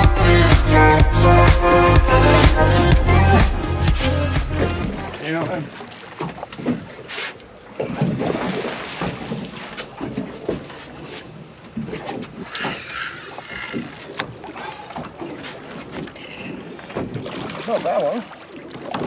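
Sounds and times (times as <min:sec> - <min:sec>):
water slapping against boat hull: 0:05.1 - 0:19.0.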